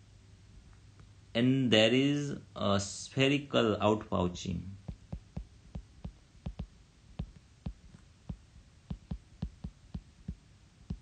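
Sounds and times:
stylus tapping on screen: 4.8 - 11.0.

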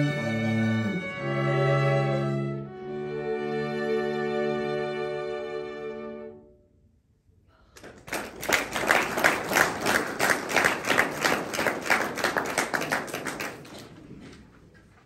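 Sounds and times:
close hands clapping: 7.7 - 14.5
audience applause: 7.8 - 14.5.

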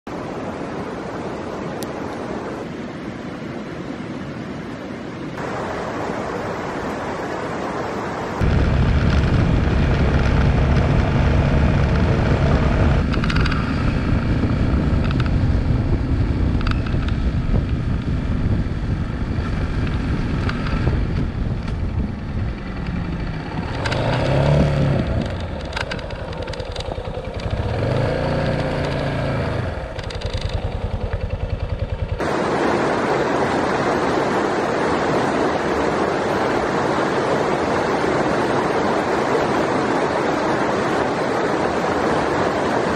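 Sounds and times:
river rushing: 0.1 - 15.3, 19.4 - 42.9
wood fire crackling: 8.4 - 13.0
low rumble: 8.4 - 32.6.

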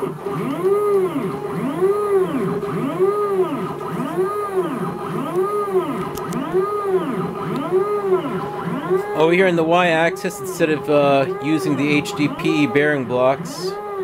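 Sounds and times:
stepper motors whining: 0.0 - 14.0.

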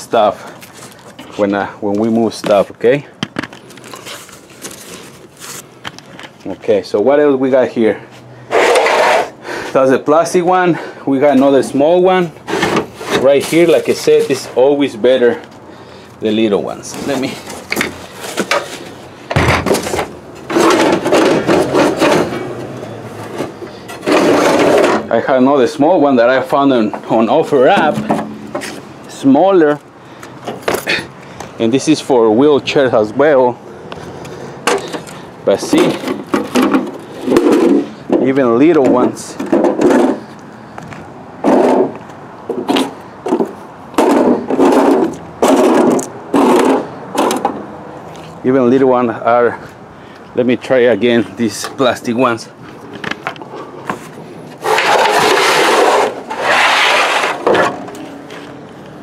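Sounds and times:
scraping and rustling: 3.5 - 6.6, 8.5 - 9.4, 16.7 - 25.4, 26.3 - 29.3, 34.7 - 47.6, 52.7 - 58.6.

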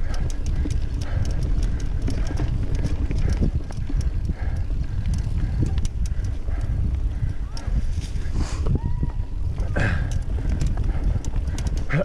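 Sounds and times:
bike clicking and rattling: 0.0 - 12.0
low rumble of wind and trail: 0.0 - 12.0.

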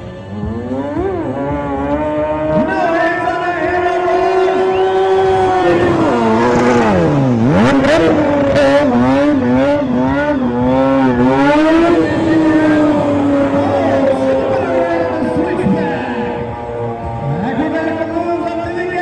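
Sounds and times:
exhaust crackles: 0.0 - 19.0
motorcycle engine revving: 0.0 - 19.0.

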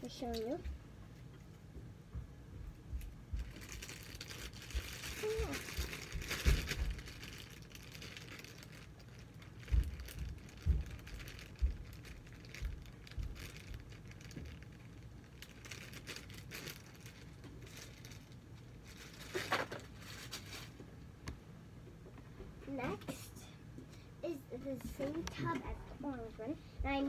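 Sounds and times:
plastic bag crinkling: 3.3 - 20.8.

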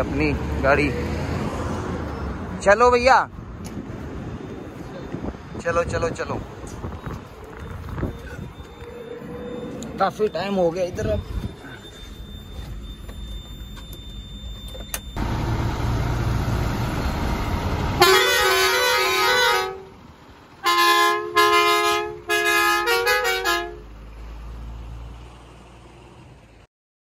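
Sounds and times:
low engine rumble: 3.3 - 23.0
truck air horn honking: 18.0 - 20.0, 20.6 - 23.9.

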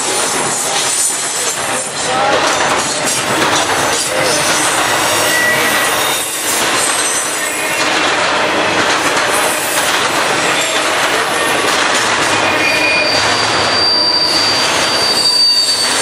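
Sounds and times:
freight train rumbling past: 0.0 - 16.0
high-pitched wheel squeals: 4.1 - 7.8, 12.4 - 16.0.

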